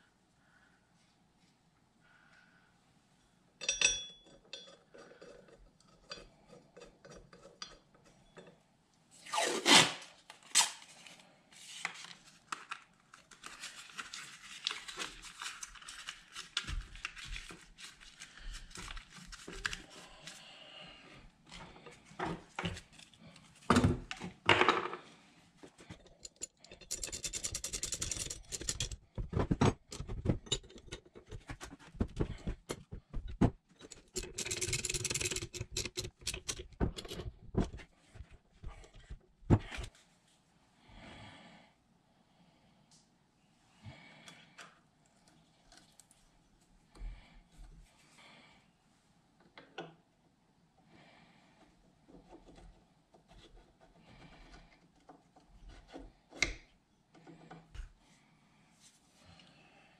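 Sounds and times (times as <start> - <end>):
wrenches clanking on metal: 25.9 - 37.8.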